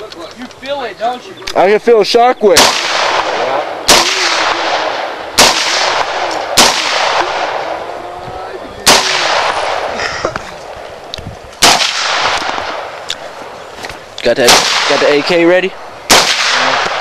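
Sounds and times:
rifle shots with echo: 2.5 - 7.9, 8.8 - 10.0, 11.6 - 13.0, 14.4 - 15.5, 16.1 - 17.0.

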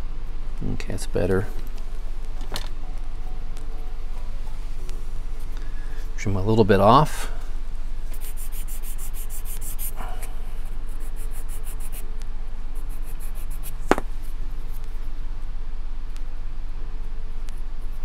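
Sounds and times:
sanding block rubbing wood: 8.2 - 10.0
sharp knock: 13.9 - 14.1.

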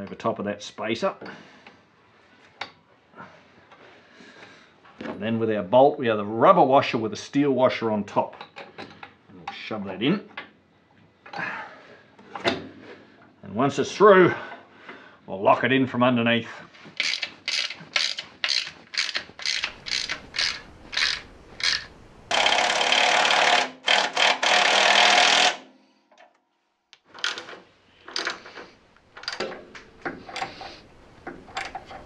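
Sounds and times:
rasping buzz: 17.0 - 25.6
ratchet wrench clicking: 17.0 - 25.6.

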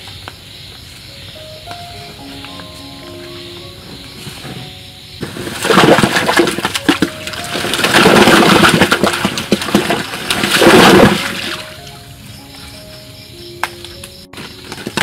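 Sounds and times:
water splashing and sloshing: 4.0 - 12.0
fruits knocking and plopping: 5.2 - 11.7.

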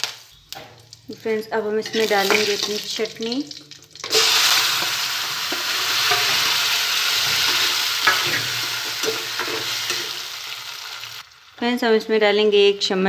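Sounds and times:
paste sizzling in hot oil: 1.8 - 11.6
spatula scraping pan: 4.1 - 10.4.

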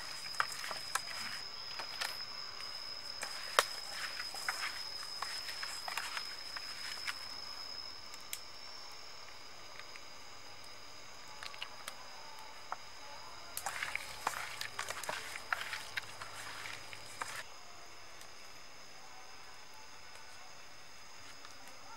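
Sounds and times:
hand kneading raw meat: 0.0 - 2.2, 2.8 - 7.3, 13.6 - 17.4
high-pitched insect drone: 0.0 - 21.9.

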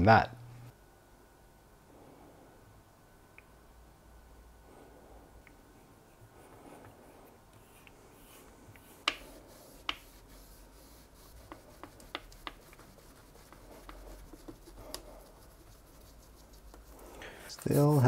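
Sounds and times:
cloth rubbing on screen: 6.4 - 18.0.

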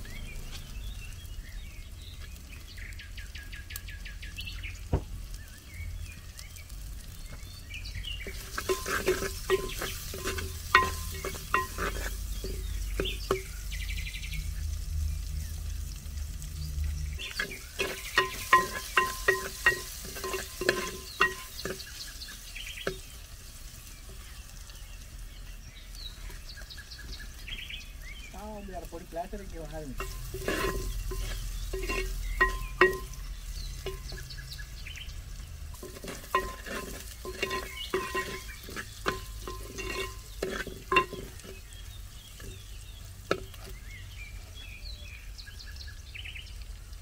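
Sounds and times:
birds chirping: 0.0 - 47.0
food frying in a pot: 0.0 - 47.0
ladle knocking against pot: 35.8 - 41.6.

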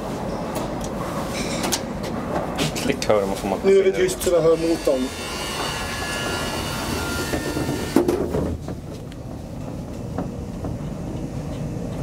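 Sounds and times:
elevator whine: 5.4 - 12.0.

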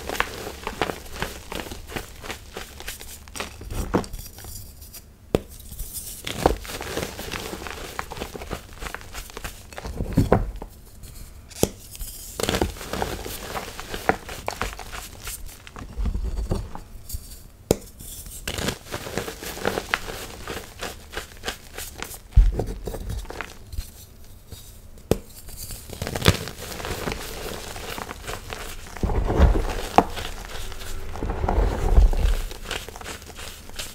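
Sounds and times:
soft low thuds: 28.8 - 33.0.

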